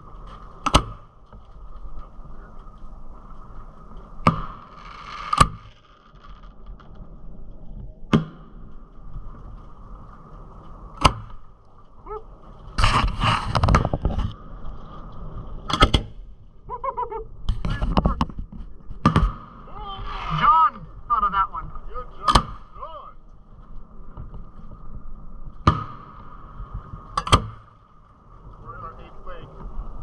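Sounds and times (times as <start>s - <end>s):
fireworks crackling pops: 0.0s - 7.0s, 12.6s - 14.4s
firework bangs: 19.0s - 20.7s.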